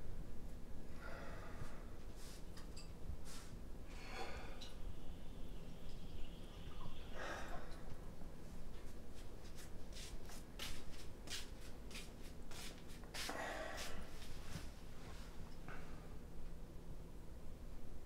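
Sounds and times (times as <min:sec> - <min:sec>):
soft rustle: 0:01.6 - 0:03.6, 0:08.4 - 0:15.9
light footsteps: 0:08.4 - 0:15.3.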